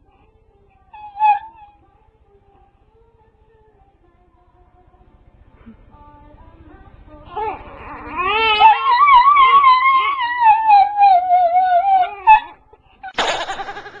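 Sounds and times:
dog howling: 0.9s - 1.8s, 7.3s - 12.7s
baby crying: 7.3s - 12.6s
brief burst of sound: 13.2s - 14.0s.

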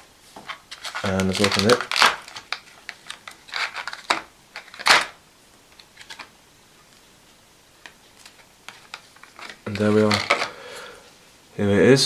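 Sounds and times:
plastic wrapping crinkling: 0.3s - 6.3s, 7.8s - 10.7s.

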